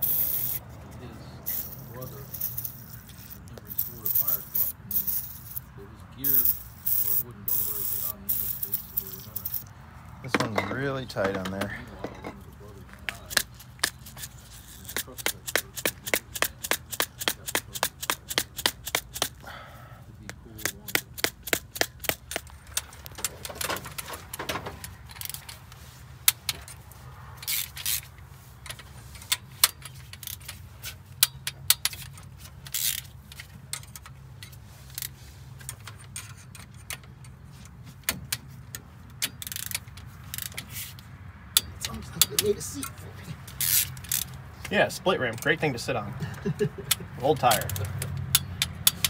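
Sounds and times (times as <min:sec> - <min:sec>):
socket ratchet clicking: 0:00.0 - 0:00.6, 0:01.5 - 0:05.7, 0:13.3 - 0:19.4, 0:20.3 - 0:23.3, 0:27.4 - 0:37.4, 0:38.0 - 0:44.4, 0:46.8 - 0:49.0
tool taps: 0:10.3 - 0:12.4.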